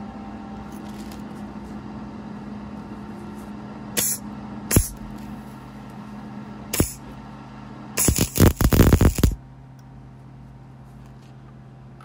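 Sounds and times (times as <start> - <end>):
welding crackling bursts: 4.0 - 5.0, 6.8 - 7.0, 8.0 - 9.4
low hum: 4.0 - 10.8.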